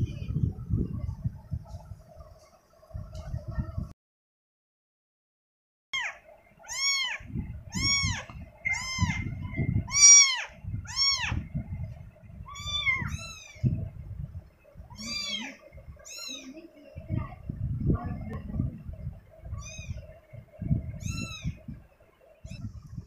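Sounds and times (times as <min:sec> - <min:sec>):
low rumbling noise: 0:00.0 - 0:03.9, 0:06.3 - 0:23.0
kitten mewing: 0:06.0 - 0:09.2, 0:09.9 - 0:11.4, 0:12.5 - 0:13.6, 0:14.9 - 0:16.5, 0:19.6 - 0:20.0.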